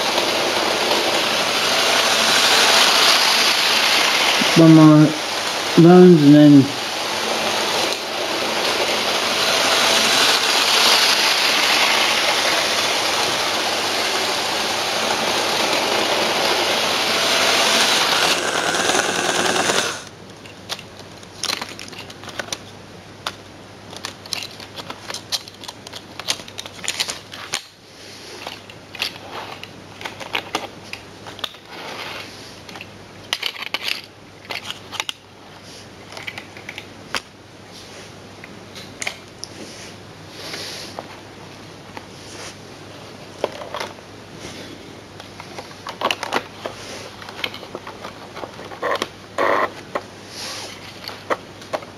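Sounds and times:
model train whirring on track: 0.0s - 20.1s.

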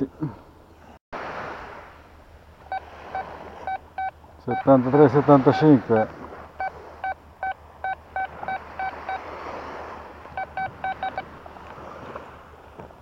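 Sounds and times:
metal detector beeping: 2.7s - 9.3s, 10.2s - 11.3s.

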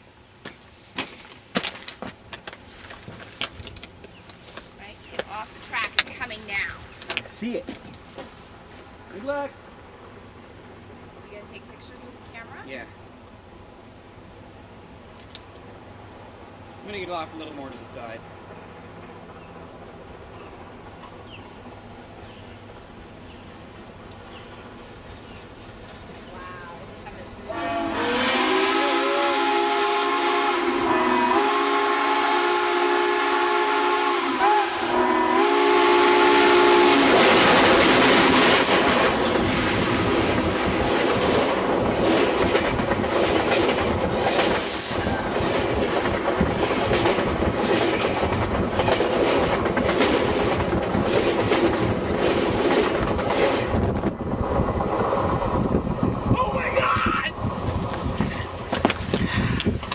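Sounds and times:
train wheels clattering on rail: 0.4s - 8.9s, 17.0s - 26.3s, 36.4s - 56.3s, 57.5s - 59.9s
loud rush of steam: 26.0s - 59.9s
steam whistle blasts: 27.5s - 37.2s.

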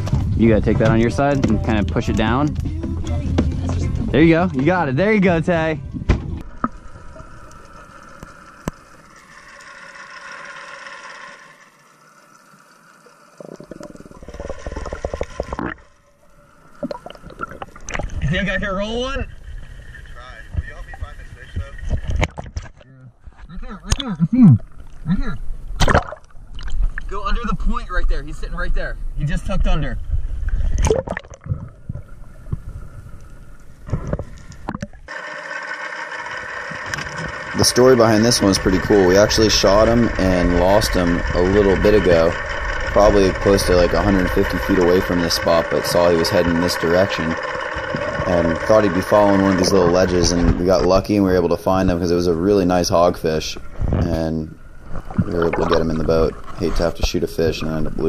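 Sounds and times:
steady hum: 0.0s - 58.0s
low underwater hiss: 5.6s - 22.3s, 31.6s - 58.0s
water splashing and sloshing: 5.9s - 23.5s, 24.6s - 27.2s, 30.1s - 37.6s, 38.7s - 58.0s
bubbly bursts: 13.2s - 19.9s, 30.6s - 33.2s, 54.7s - 57.0s
underwater clicks: 13.4s - 15.9s, 16.7s - 18.2s, 25.8s - 27.1s, 30.4s - 35.2s, 54.8s - 57.2s
muffled underwater sound: 36.8s - 58.0s.

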